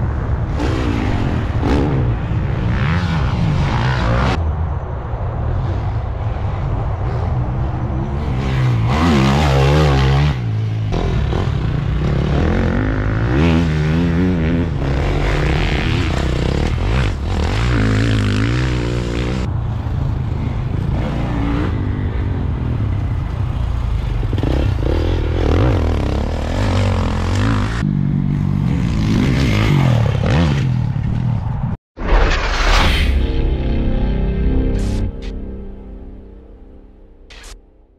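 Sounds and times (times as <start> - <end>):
motocross bikes revving: 8.0 - 31.2.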